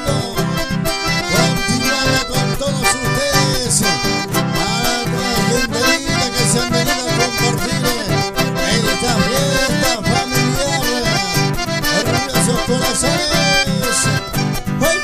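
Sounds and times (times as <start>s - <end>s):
acoustic guitar: 0.0s - 15.0s
button accordions playing: 0.0s - 15.0s.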